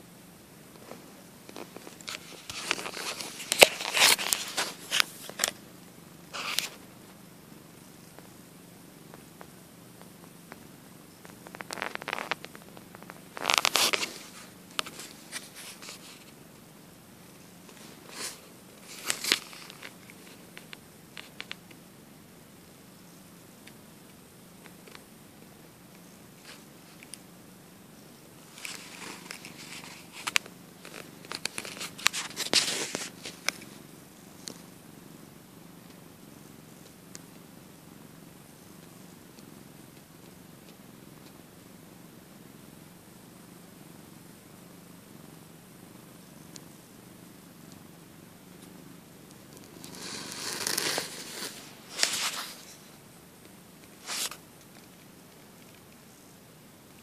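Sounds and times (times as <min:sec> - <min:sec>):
cat purring: 0:00.0 - 0:57.0
rustling: 0:00.7 - 0:07.2, 0:11.2 - 0:16.6, 0:17.2 - 0:21.7, 0:28.4 - 0:34.8, 0:48.6 - 0:53.0, 0:53.8 - 0:56.2
phone rubbing against fur: 0:06.3 - 0:06.8, 0:13.1 - 0:16.3, 0:49.8 - 0:52.8, 0:54.0 - 0:54.4.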